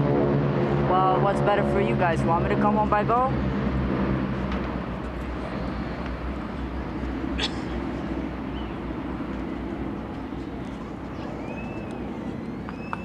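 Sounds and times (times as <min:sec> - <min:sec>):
propeller aircraft engines droning: 0:00.0 - 0:13.0.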